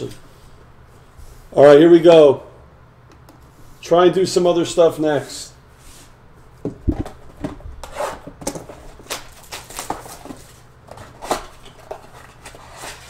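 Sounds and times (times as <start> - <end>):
cardboard box tearing and rustling: 7.8 - 13.0.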